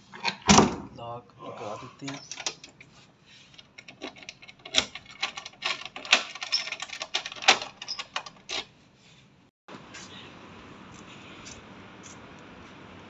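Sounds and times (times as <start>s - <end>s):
faint open-air hiss: 7.5s - 13.0s.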